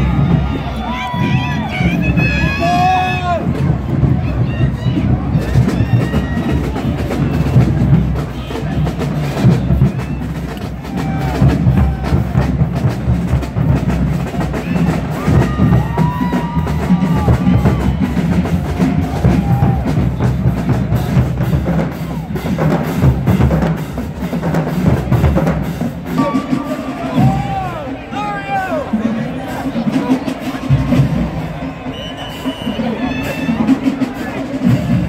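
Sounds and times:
snare drum rolls: 0.0s - 27.9s
bass drums beating: 0.0s - 35.0s
marching drumline cadence: 0.0s - 35.0s.

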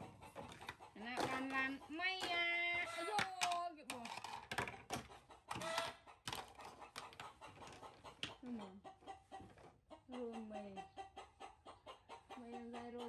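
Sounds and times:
plastic toys clacking on wooden table: 0.4s - 8.4s.

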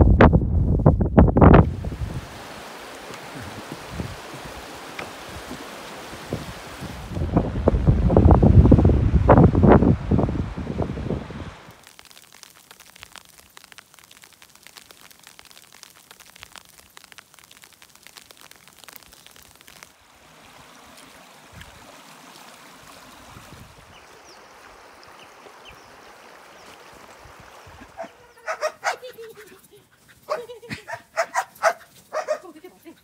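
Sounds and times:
stream running over stones: 1.3s - 29.4s
wet snow pattering on fabric: 1.6s - 7.3s, 11.6s - 20.0s, 26.4s - 33.0s.

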